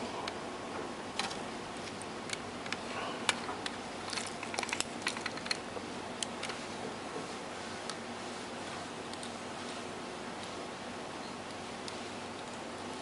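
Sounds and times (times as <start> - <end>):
soldering ticks and crackles: 11.4 - 13.0.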